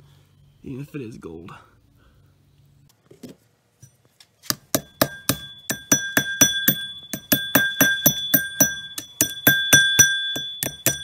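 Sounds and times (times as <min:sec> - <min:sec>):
hammer pounding rocks in metal pot: 0:04.5 - 0:11.0.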